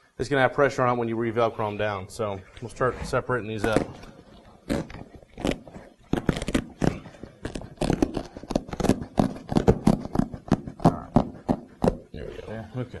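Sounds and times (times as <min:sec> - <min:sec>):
hook-and-loop strips ripping apart: 0:04.6 - 0:10.8.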